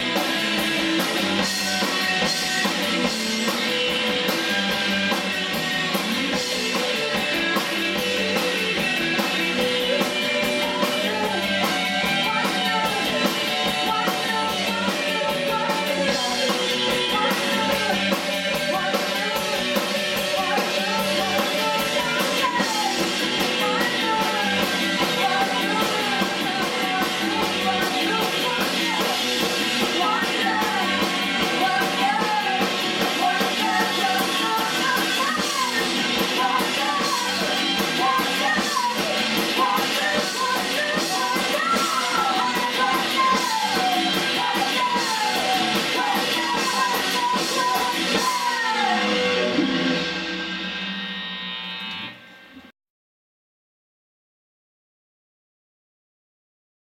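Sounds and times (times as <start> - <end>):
bass guitar: 0.0 - 52.7
drum kit: 0.0 - 52.7
electric guitars: 0.0 - 52.7
woman singing: 6.0 - 49.6.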